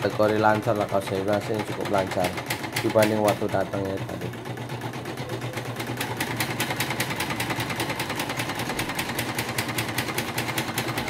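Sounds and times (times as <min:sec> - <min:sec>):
sewing machine motor hum: 0:00.0 - 0:11.0.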